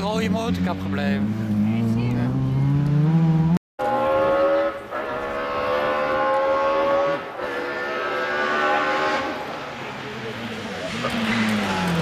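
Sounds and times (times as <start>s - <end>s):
car engine accelerating through gears: 0.6s - 3.6s.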